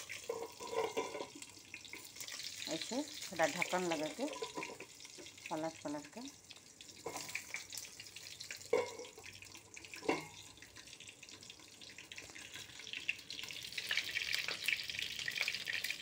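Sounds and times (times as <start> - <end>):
food frying in oil: 0.0 - 16.0
pan lid clinking: 0.1 - 1.4.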